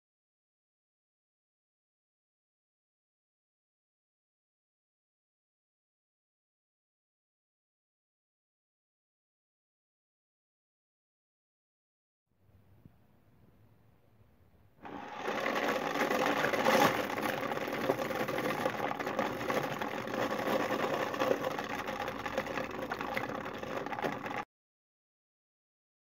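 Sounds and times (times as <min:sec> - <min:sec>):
electric motor whirring: 0:14.8 - 0:24.1.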